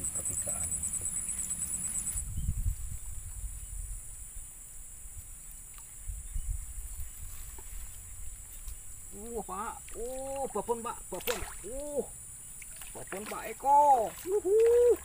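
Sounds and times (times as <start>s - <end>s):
high-pitched insect drone: 0.0s - 2.4s.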